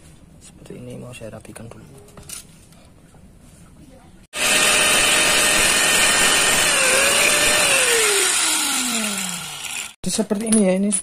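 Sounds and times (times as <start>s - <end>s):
small electric power tool running: 4.4s - 10.0s.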